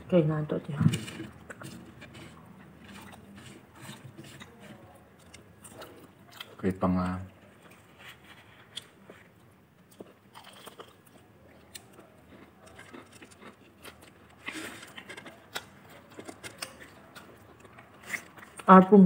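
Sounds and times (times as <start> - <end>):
chewing and crunching: 0.8 - 18.9.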